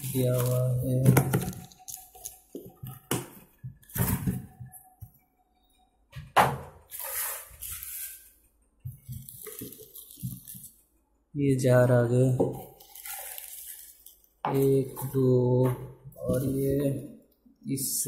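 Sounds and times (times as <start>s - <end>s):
cardboard and plastic rustling: 0.0s - 4.8s, 6.9s - 10.8s, 12.5s - 15.3s.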